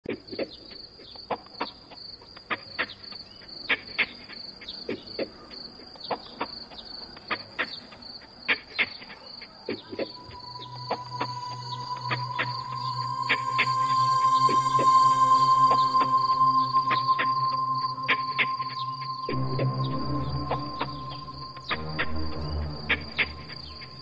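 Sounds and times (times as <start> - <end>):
crickets chirping: 0.1 - 24.0.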